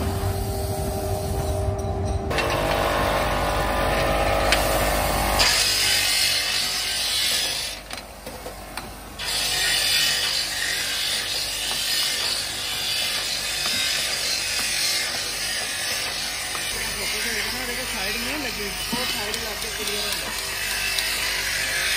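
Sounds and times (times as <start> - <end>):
workshop machine noise: 0.0 - 21.9.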